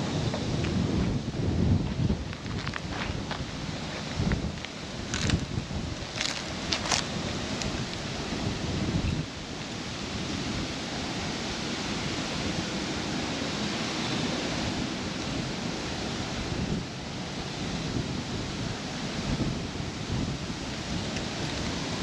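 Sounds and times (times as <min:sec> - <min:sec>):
wind buffeting microphone: 0:00.0 - 0:22.0.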